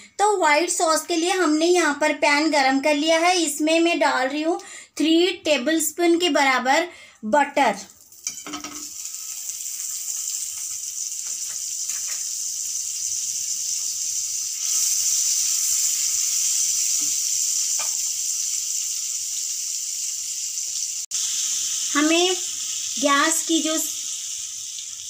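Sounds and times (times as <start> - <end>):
butter sizzling in frying pan: 8.1 - 25.0.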